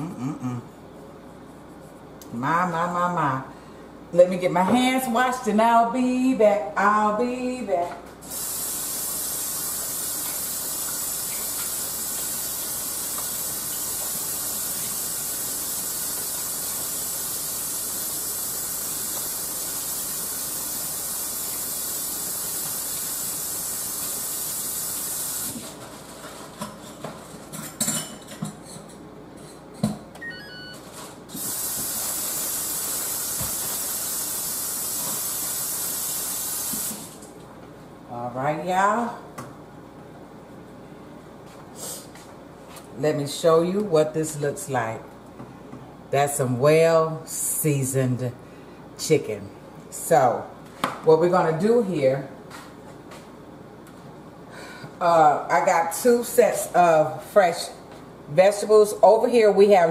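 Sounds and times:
tap water running: 8.2s - 25.7s, 31.3s - 37.4s.

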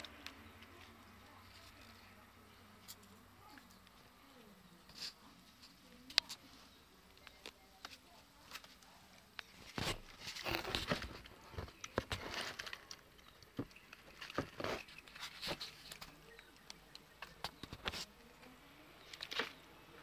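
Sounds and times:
plastic and cardboard rustling: 4.3s - 16.6s.

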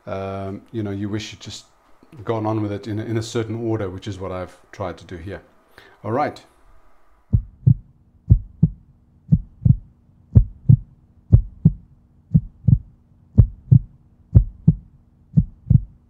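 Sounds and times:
heartbeat thumps: 7.3s - 16.0s.

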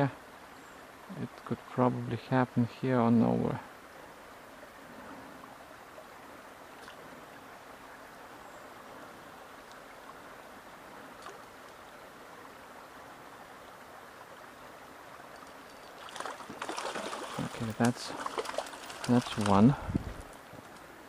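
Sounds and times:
stream water running: 0.0s - 21.0s
faint ticks: 9.6s - 9.9s, 11.2s - 12.0s, 20.2s - 20.9s.

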